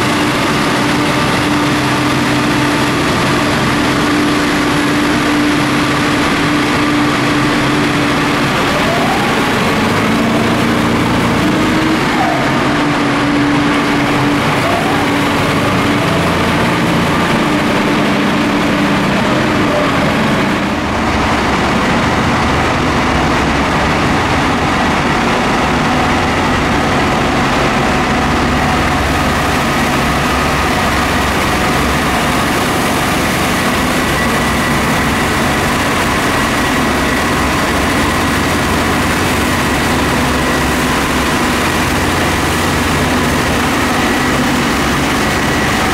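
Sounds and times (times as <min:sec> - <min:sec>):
diesel engine drone: 0:00.0 - 0:45.9.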